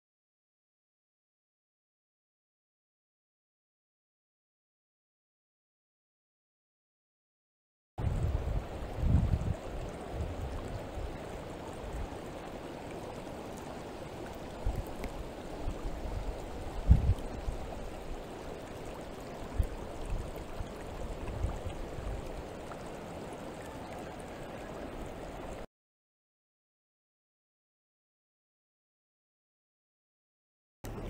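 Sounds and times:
wind buffeting microphone: 8.0s - 12.2s, 14.4s - 18.2s, 19.4s - 22.4s
stream rippling over stones: 8.0s - 25.7s.

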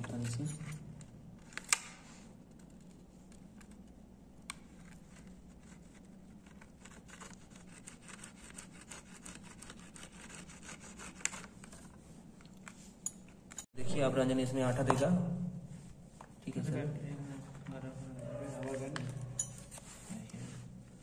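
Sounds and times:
fingers scratching phone cover: 2.5s - 12.0s.

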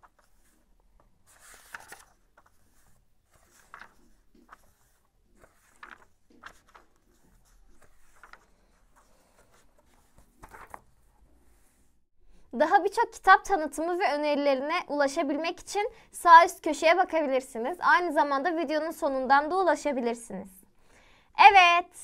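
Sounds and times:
pages turning: 0.0s - 11.9s.

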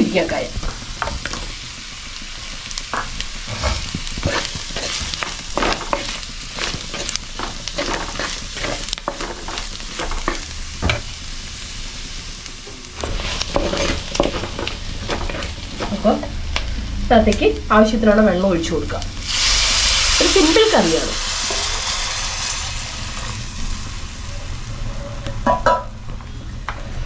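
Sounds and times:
spices sizzling in oil: 0.0s - 26.0s
wooden spatula scraping clay pot: 3.4s - 10.4s, 13.1s - 16.3s.

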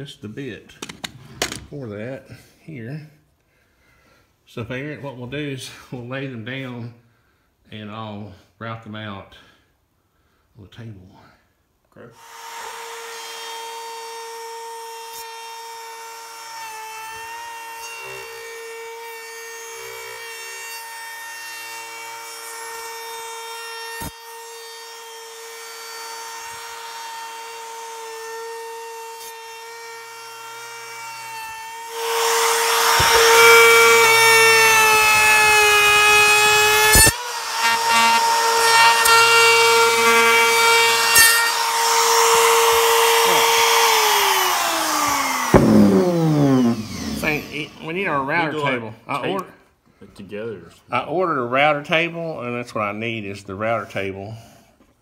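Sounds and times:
router whining: 12.2s - 48.8s
router bit cutting wood: 12.2s - 49.4s
sharp knocks: 45.5s - 47.0s.

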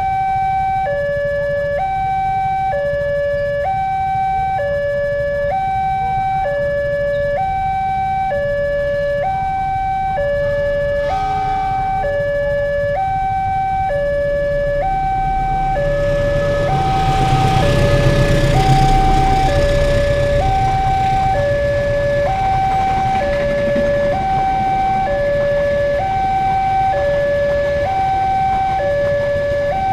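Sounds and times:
level crossing alarm two-tone wail: 0.0s - 29.9s
passing train rumble: 6.9s - 29.9s.

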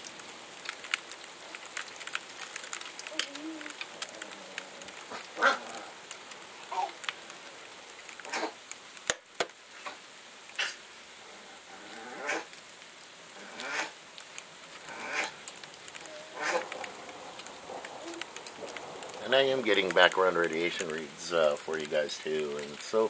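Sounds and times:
ice pellets ticking on window: 0.0s - 9.6s, 14.1s - 23.0s.

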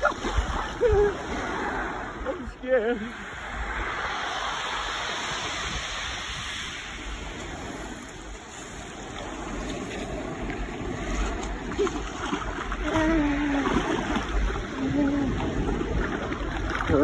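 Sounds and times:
waves washing: 0.0s - 17.0s
water sloshing around wading person: 7.2s - 17.0s.

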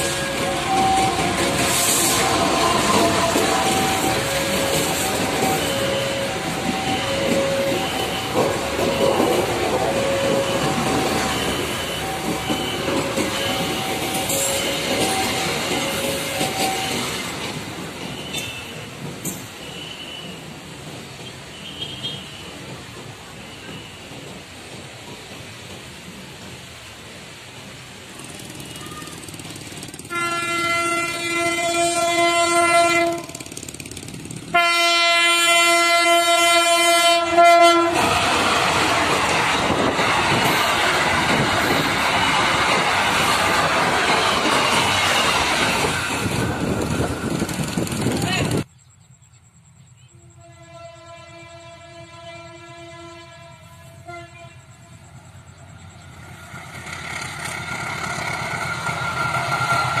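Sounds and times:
diesel locomotive horn: 0.0s - 17.0s, 21.5s - 22.5s, 30.0s - 33.6s, 34.5s - 38.4s, 50.1s - 55.3s
train wheels on rails: 0.0s - 60.0s.

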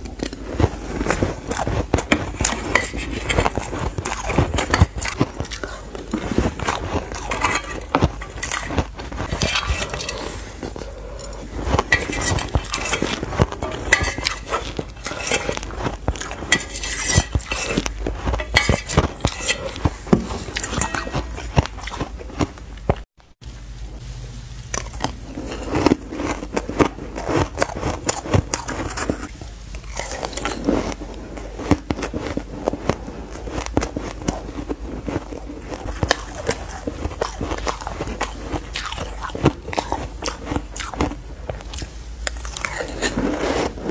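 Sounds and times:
shaved ice crunched and chewed: 0.0s - 23.1s, 24.7s - 43.9s
spoon scraping in steel bowl: 0.8s - 22.3s, 24.9s - 31.0s.

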